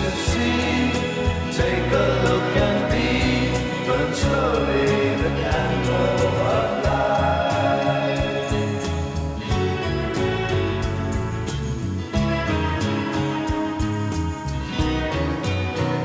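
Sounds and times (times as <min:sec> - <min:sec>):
music with singing voices: 0:00.0 - 0:16.0
steady bass line: 0:00.0 - 0:16.0.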